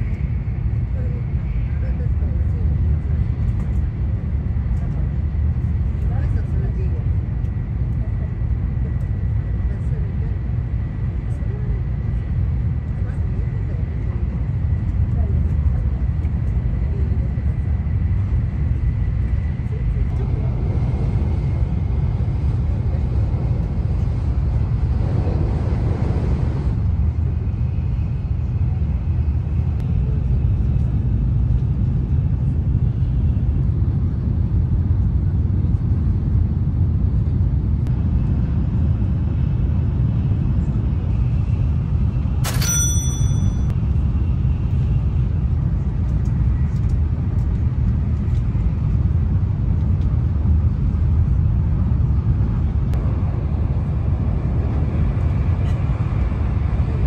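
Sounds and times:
train rumble inside cabin: 0.0 - 57.0
sharp ringing clink: 42.4 - 43.8.

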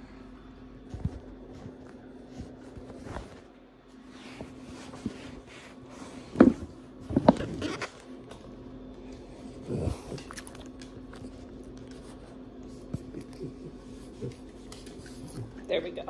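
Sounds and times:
dog snorting: 9.2 - 15.6.

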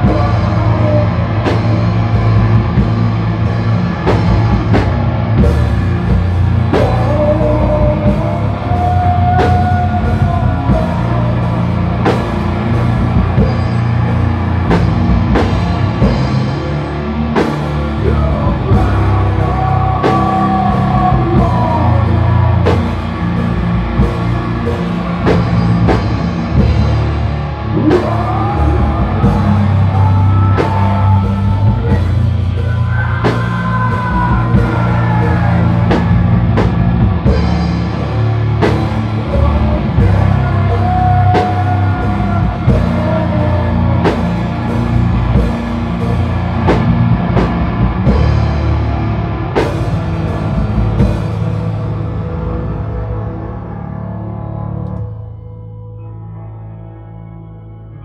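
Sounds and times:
man singing: 0.0 - 3.0, 6.1 - 14.8, 17.3 - 23.6, 27.6 - 38.0, 38.6 - 46.9
live rock band playing: 0.0 - 58.0.

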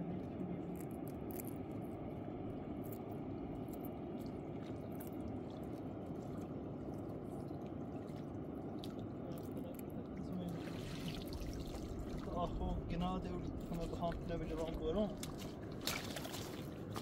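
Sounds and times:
water rushing: 2.4 - 17.0
water dripping and splashing: 3.7 - 17.0.

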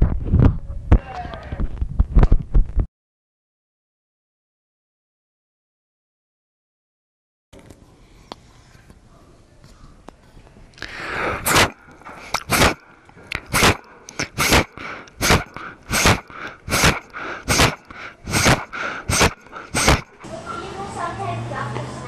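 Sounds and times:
person huffing breaths: 10.8 - 20.2.

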